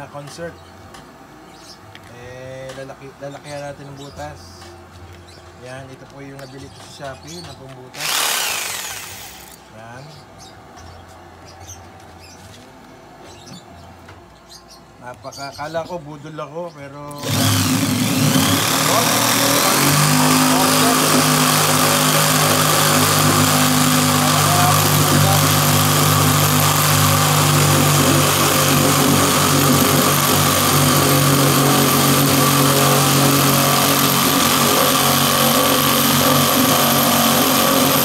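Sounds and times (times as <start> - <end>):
saw blade cutting wood: 6.8 - 9.6, 17.2 - 38.0
electric drill motor hum: 7.9 - 9.6, 17.2 - 38.0.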